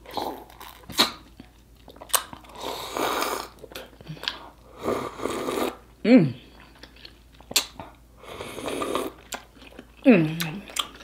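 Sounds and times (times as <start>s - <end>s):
wet sucking and slurping: 2.5s - 3.7s, 4.7s - 5.8s, 8.2s - 9.2s.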